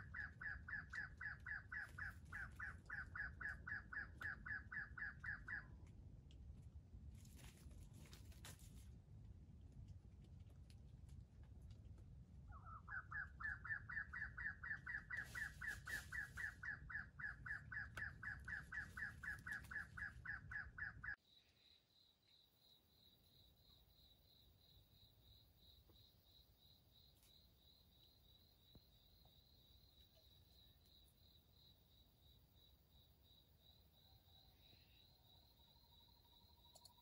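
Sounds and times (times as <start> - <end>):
pulsing insect trill: 21.3 - 37.0.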